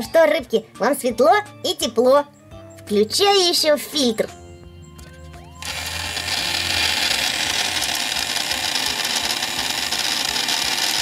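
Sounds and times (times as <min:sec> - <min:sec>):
aquarium filter whirring: 0:05.6 - 0:11.0.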